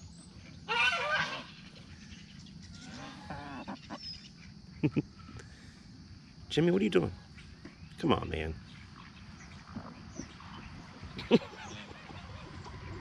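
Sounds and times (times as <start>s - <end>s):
geese honking: 2.8s - 4.0s.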